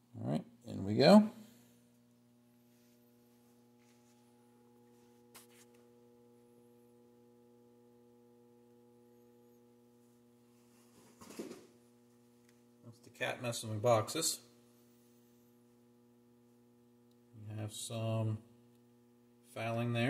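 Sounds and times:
electrical mains hum: 0:00.0 - 0:20.0.

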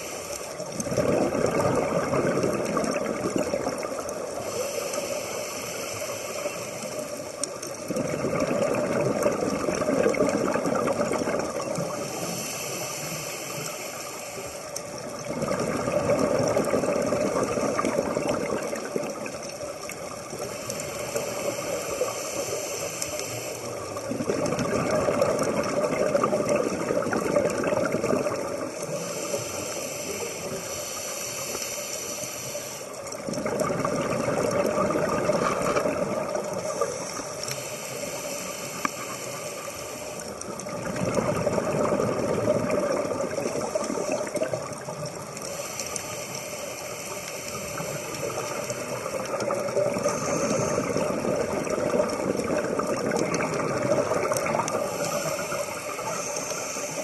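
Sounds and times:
bubbling exhale underwater: 0:00.0 - 0:05.8, 0:07.0 - 0:13.8, 0:14.8 - 0:22.4, 0:23.6 - 0:30.7, 0:33.1 - 0:46.4, 0:47.4 - 0:57.0
scuba regulator breathing: 0:03.4 - 0:07.8, 0:10.9 - 0:15.4, 0:16.4 - 0:24.2, 0:28.3 - 0:33.5, 0:34.5 - 0:40.7, 0:42.7 - 0:57.0.

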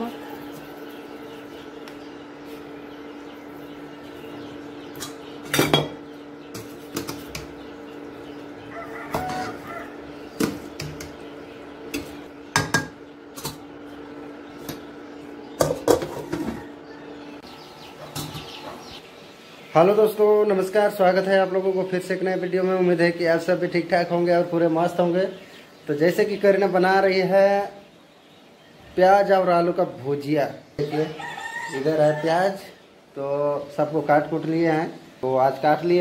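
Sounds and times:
steady hum: 0:00.0 - 0:19.9.

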